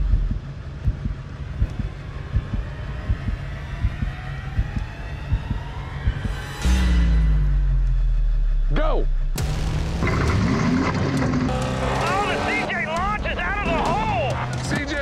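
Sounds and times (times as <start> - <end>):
low heartbeat-like thuds: 0.0 - 6.8
low rumble: 0.0 - 14.6.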